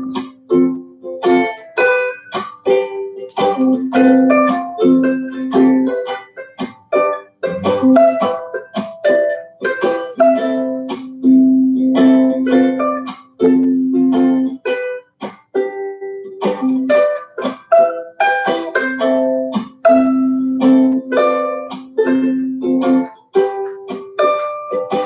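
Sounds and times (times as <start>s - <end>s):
plucked string music: 0.0s - 25.0s.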